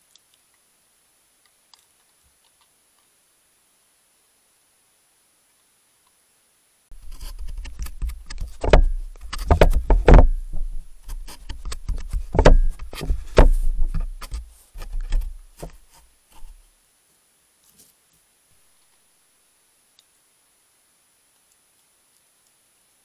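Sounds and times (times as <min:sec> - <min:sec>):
heavy low rumble: 0:06.9 - 0:14.2
knocks and scrapes on camera: 0:06.9 - 0:16.6.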